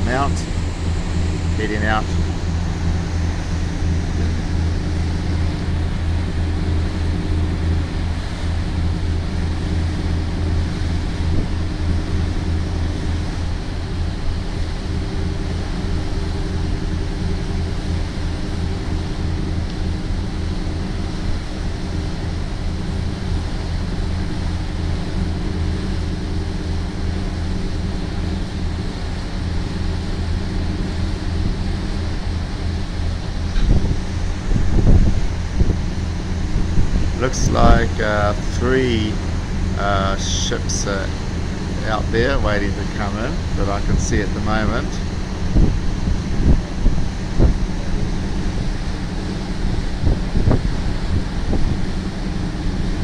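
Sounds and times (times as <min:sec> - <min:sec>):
marine engines droning: 0:00.0 - 0:53.0
water rushing from boat wake: 0:00.0 - 0:53.0
wind: 0:00.0 - 0:53.0.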